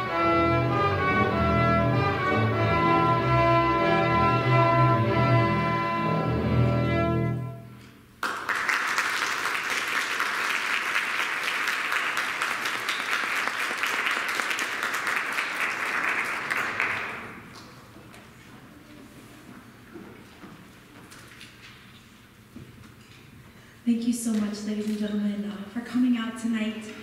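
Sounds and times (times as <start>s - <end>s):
string ensemble chord: 0.0s - 7.8s
audience applauding: 8.2s - 18.0s.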